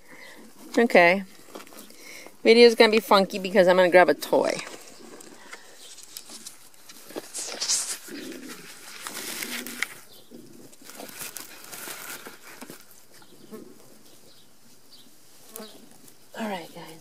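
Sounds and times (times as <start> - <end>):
camera rustling and knocking: 4.7 - 10.0.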